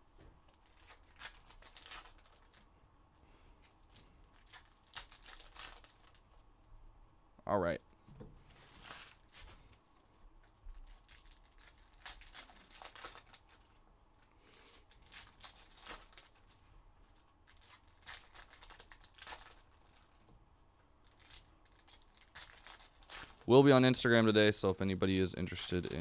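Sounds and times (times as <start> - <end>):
foil wrappers crinkling: 0.4 - 2.7, 3.6 - 6.4, 8.5 - 20.2, 21.0 - 23.6, 24.9 - 26.0.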